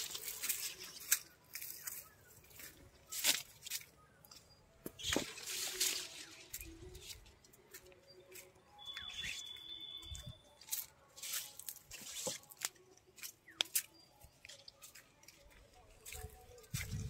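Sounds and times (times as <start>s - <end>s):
leaves rustling and swishing: 0.0s - 3.9s, 5.0s - 7.3s.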